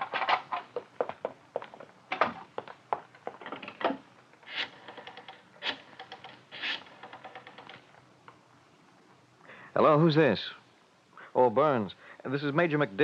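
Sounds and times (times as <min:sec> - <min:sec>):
footsteps: 0:00.0 - 0:03.6
rotary telephone dialling: 0:04.7 - 0:07.8.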